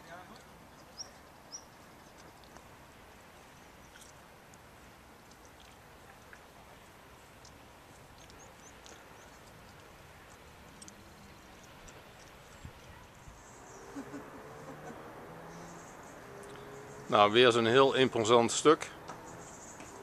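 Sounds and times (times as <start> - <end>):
faint steady hiss: 0.0 - 20.0
faint high ticks: 8.2 - 12.4.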